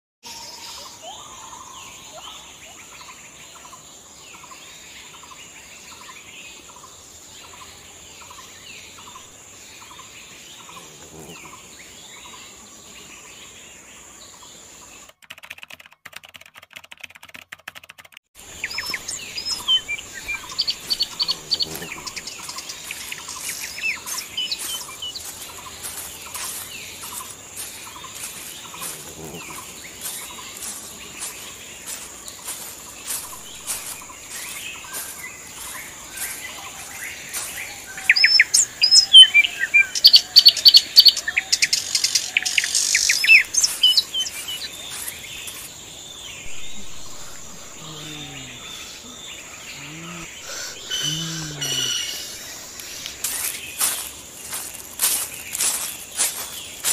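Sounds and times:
high insect drone: 0.3 - 15.0, 18.4 - 56.9
birds calling: 0.3 - 15.2, 18.4 - 56.9
sharp crackling and clicking: 15.0 - 19.6.

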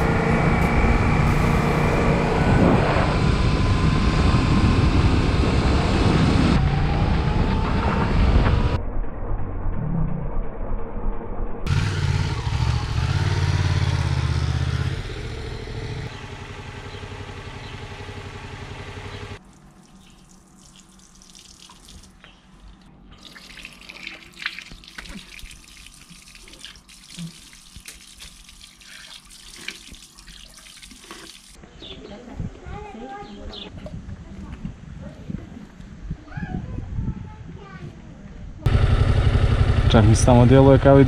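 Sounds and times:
motorcycle engine running: 11.7 - 19.4, 38.6 - 41.0
small splashes and clicks: 19.4 - 31.6
water running into stone trough: 19.4 - 31.6.

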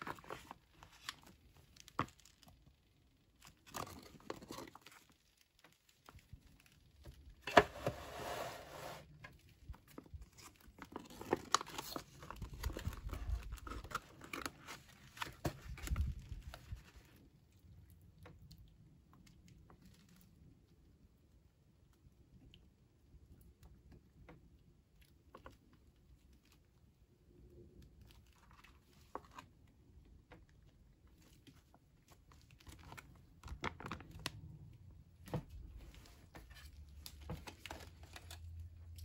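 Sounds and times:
foil pouch crinkling: 9.7 - 17.2.

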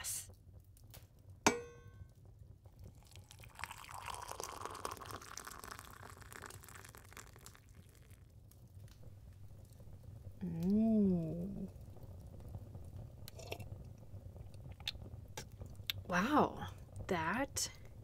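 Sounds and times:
hot water pouring into cup: 2.7 - 8.4.

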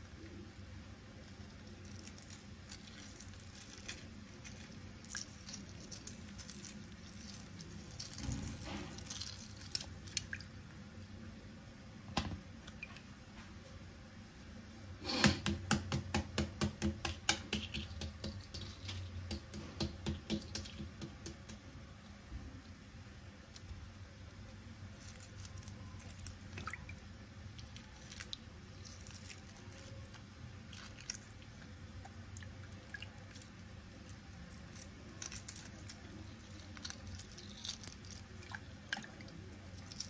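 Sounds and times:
eggshell crackling: 0.3 - 11.2, 17.0 - 21.6, 23.4 - 40.0
water drips: 2.0 - 10.8, 26.0 - 29.9.

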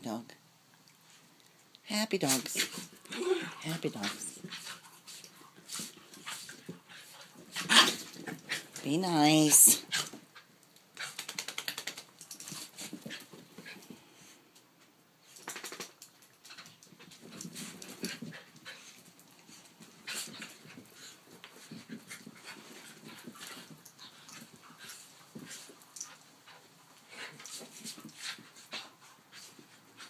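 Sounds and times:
dogs scuffling: 15.3 - 30.0
dogs panting: 16.4 - 30.0.

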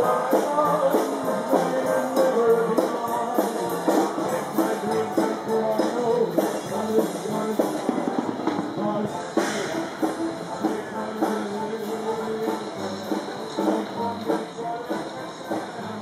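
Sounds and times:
jazz band playing: 0.0 - 16.0
steady drum beat: 0.0 - 16.0.

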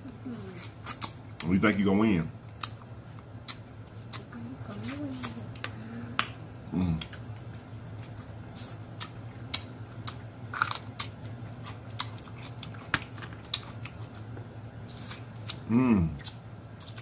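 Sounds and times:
chewing and mouth sounds: 2.5 - 17.0
crab shell cracking: 9.0 - 14.3.

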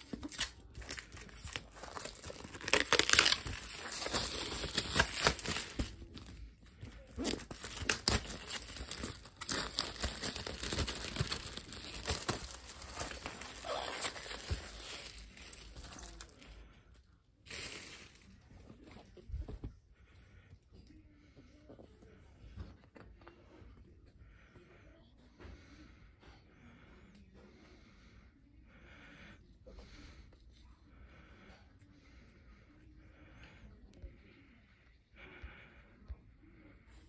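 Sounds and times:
plastic wrap crinkling and tearing: 0.0 - 16.6, 17.4 - 18.8.

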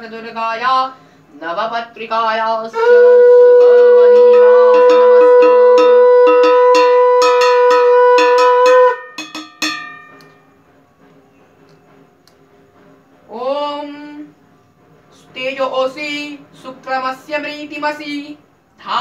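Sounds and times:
conch shell blown: 2.7 - 10.4
hand bell ringing rapidly: 4.3 - 10.5.

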